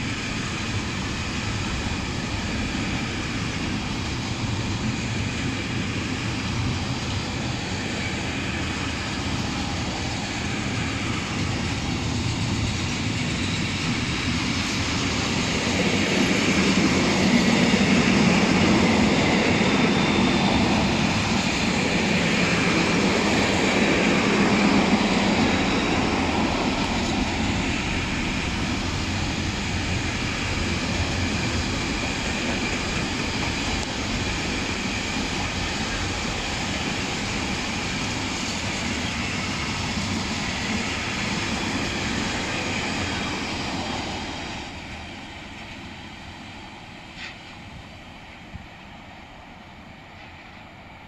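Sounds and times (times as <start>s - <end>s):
freight train wheels rumbling: 0.0s - 51.0s.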